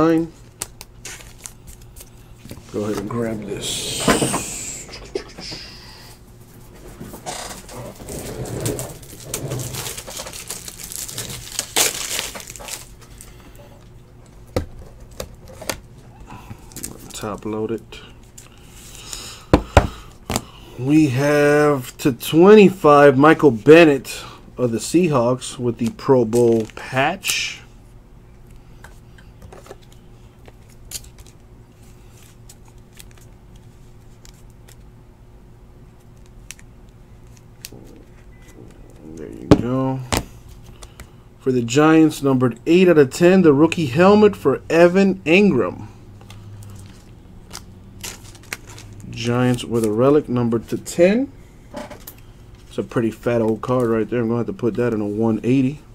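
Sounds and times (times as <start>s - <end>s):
steady low hum: 0.0s - 55.9s
card and plastic rustling: 0.3s - 3.4s, 6.7s - 13.6s, 25.8s - 27.4s, 46.2s - 50.8s
person humming: 3.3s - 6.1s
plastic scraping and rustling: 6.8s - 13.3s.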